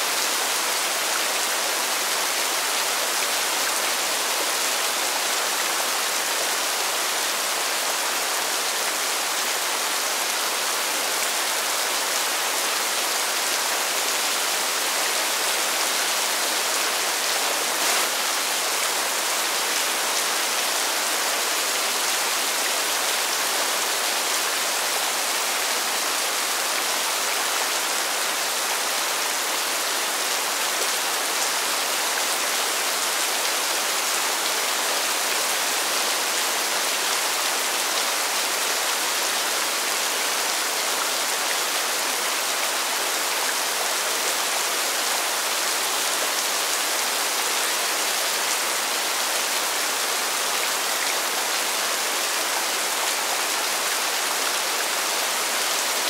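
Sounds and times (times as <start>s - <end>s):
rain falling on pavement: 0.0s - 56.0s.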